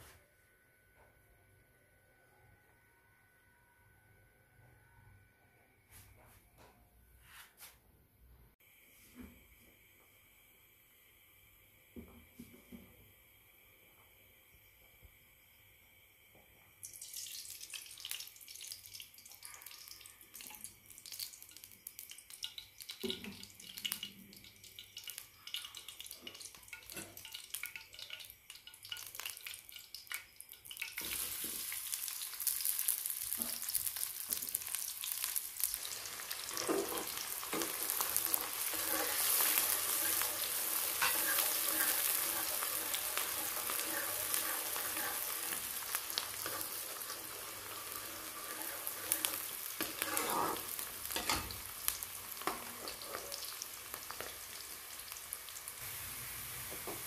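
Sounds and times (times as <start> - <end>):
onions frying sizzle: 16.2 - 57.0
hot oil crackling: 16.8 - 57.0
metal spoon stirring: 36.4 - 51.6.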